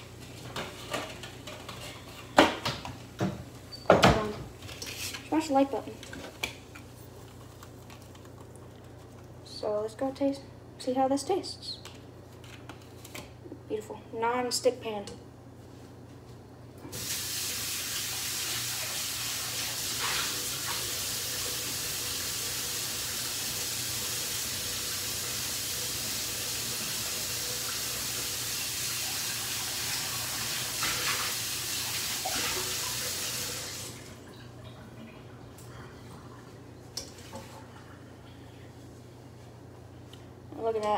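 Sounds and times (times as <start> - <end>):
tap water running over pan: 16.9 - 34.2.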